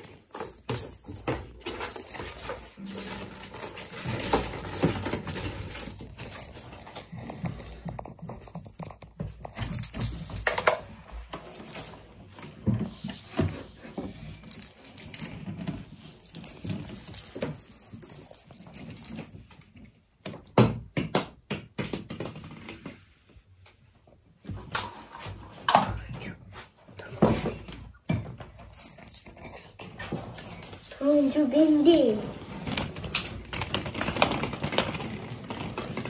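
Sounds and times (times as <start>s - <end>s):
rattle ball with bell jingling: 0.0s - 19.9s, 21.8s - 23.0s, 28.6s - 36.0s
toys and paws knocking on wooden floor: 0.0s - 23.0s, 32.4s - 36.0s.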